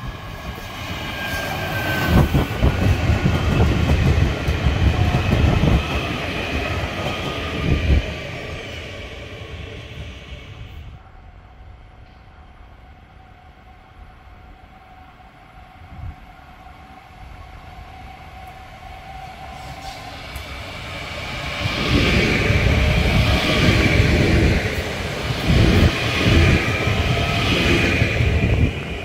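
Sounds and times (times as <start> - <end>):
train passing with rail rumble: 0.0 - 29.0.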